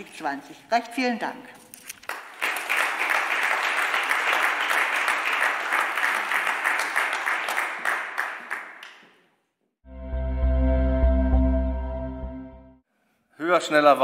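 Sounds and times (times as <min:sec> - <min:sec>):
audience applause: 0:02.1 - 0:08.9.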